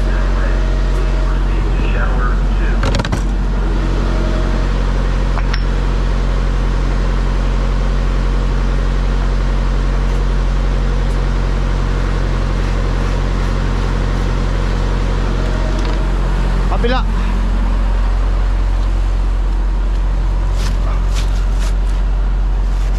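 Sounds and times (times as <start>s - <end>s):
low mechanical hum: 0.0s - 22.9s.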